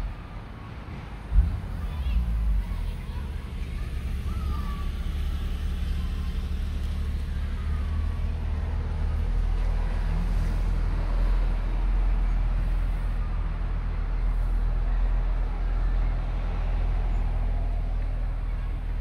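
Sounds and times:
car engine and road noise: 0:00.0 - 0:19.0.

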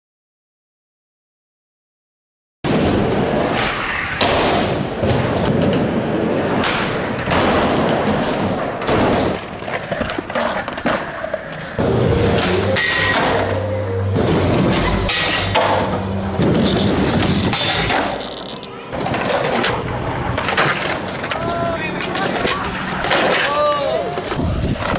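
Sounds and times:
skateboard clacks and thuds: 0:02.7 - 0:11.9, 0:19.0 - 0:23.6
skateboard wheels rolling on concrete: 0:02.7 - 0:24.9.

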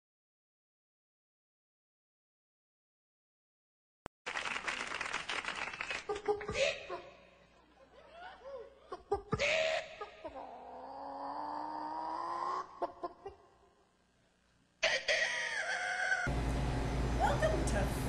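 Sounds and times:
man crying out and shouting: 0:08.1 - 0:13.3, 0:14.8 - 0:16.3.

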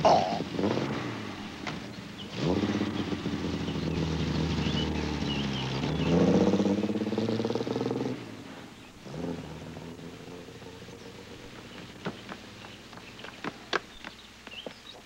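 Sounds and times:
car engine accelerating: 0:00.0 - 0:14.7.

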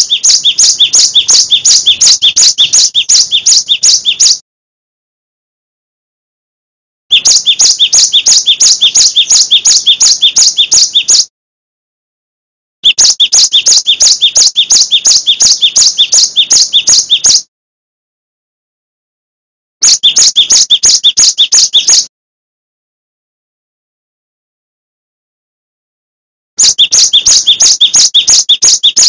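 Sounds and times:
bird singing sharp chirps: 0:00.0 - 0:04.4, 0:07.1 - 0:11.3, 0:12.8 - 0:17.5, 0:19.8 - 0:22.1, 0:26.6 - 0:29.0.

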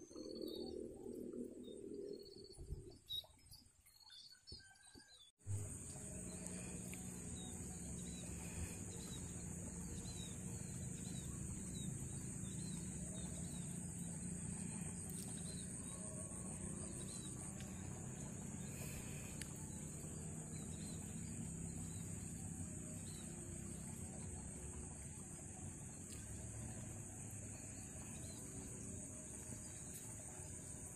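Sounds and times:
small birds chirping: 0:05.8 - 0:30.9.

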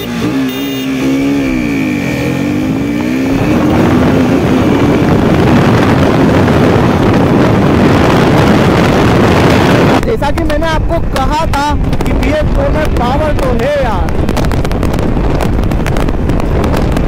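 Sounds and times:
motorcycle engine accelerating: 0:00.0 - 0:10.0
wind rushing over microphone: 0:01.0 - 0:17.0.

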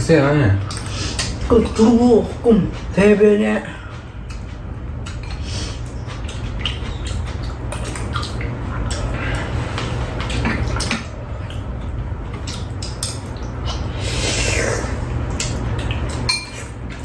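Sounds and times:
steady low hum: 0:00.0 - 0:17.0
chopsticks clicking against bowls: 0:00.6 - 0:01.4, 0:04.3 - 0:11.6, 0:12.4 - 0:13.8
slurping and chewing: 0:00.6 - 0:17.0.

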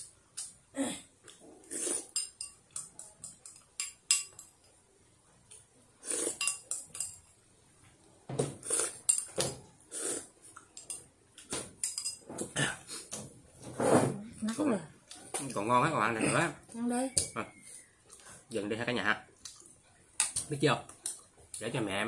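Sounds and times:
spoon clinking on ceramic bowl: 0:02.1 - 0:04.8, 0:06.4 - 0:07.3, 0:11.8 - 0:12.2.

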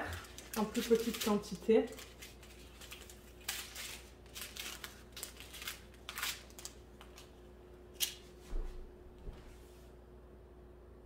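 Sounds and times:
plastic bags crinkling: 0:00.0 - 0:07.4.

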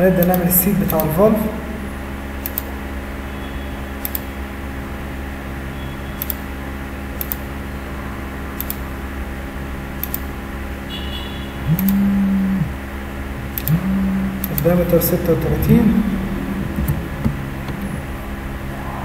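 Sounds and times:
computer fan humming: 0:00.0 - 0:19.0
computer mouse clicking: 0:00.2 - 0:01.1, 0:02.4 - 0:02.7, 0:04.0 - 0:04.3, 0:06.2 - 0:06.4, 0:07.2 - 0:07.5, 0:08.6 - 0:08.8, 0:10.0 - 0:10.3, 0:11.7 - 0:12.2, 0:13.4 - 0:14.7.

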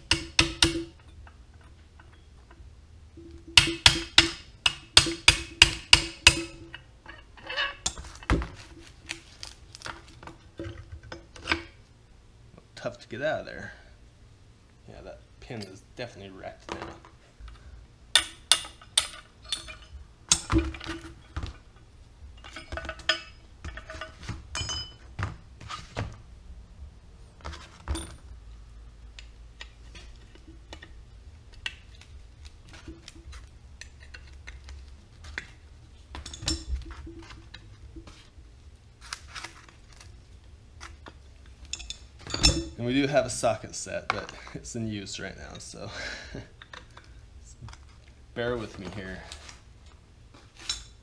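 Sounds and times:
low steady hum: 0:00.0 - 0:51.0
hand tools clinking on metal: 0:18.2 - 0:20.5, 0:22.4 - 0:25.0, 0:41.6 - 0:43.2.

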